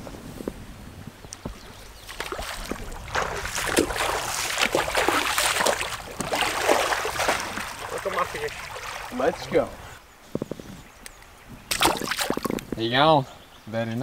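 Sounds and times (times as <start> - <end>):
fish splashing at water surface: 2.1 - 9.4, 11.7 - 12.5.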